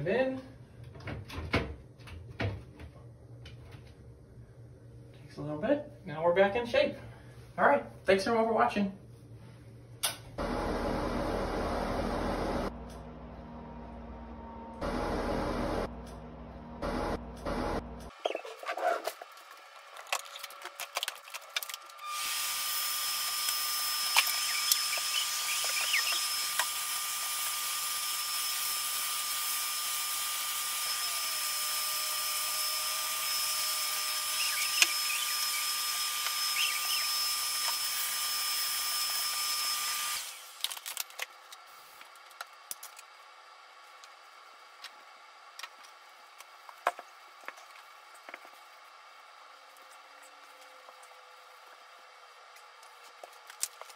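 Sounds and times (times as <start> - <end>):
vacuum cleaner running: 10.4 - 17.9, 22.0 - 40.6.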